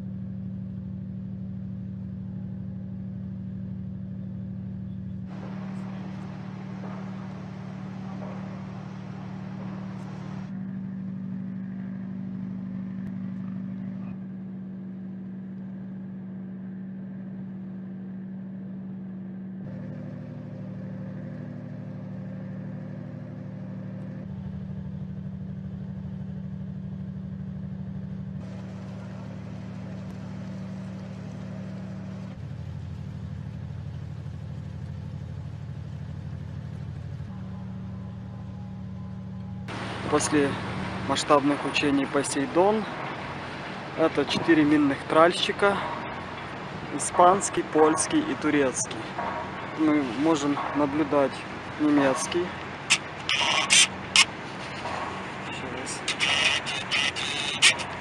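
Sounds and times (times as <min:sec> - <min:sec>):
ship engines humming: 0:00.0 - 0:58.0.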